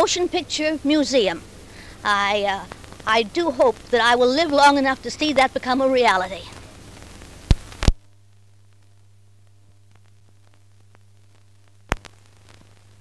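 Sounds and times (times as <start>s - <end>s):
faint crackling ticks: 0.0s - 9.0s, 9.9s - 13.0s
steady low hum: 0.0s - 13.0s
film soundtrack pops: 6.4s - 9.0s, 9.9s - 13.0s.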